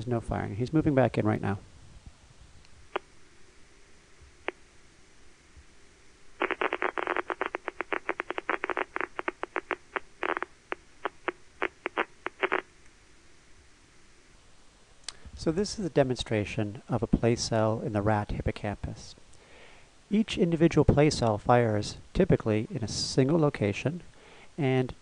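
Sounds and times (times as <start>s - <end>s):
rapid irregular pops: 6.4s - 13.0s.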